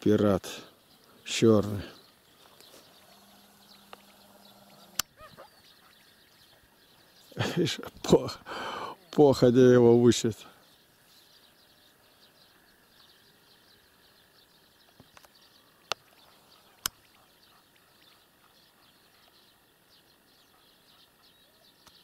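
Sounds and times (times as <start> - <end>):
faint bird chirps: 0.1 - 22.0
sharp clicks: 3.7 - 5.1.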